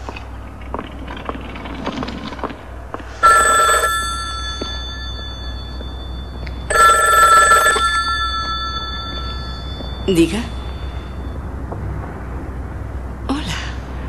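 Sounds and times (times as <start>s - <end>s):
telephone ringing: 3.2s - 11.4s.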